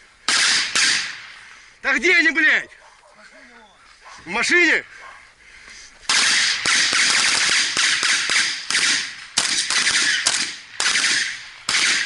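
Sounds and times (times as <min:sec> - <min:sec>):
rifle gunfire bursts: 0:00.3 - 0:01.2, 0:06.1 - 0:12.0.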